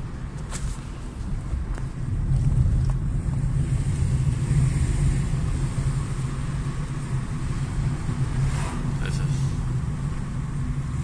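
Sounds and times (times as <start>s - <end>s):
low rumble of engine and road: 0.0s - 11.0s
hiss of tyres and air: 3.5s - 10.6s.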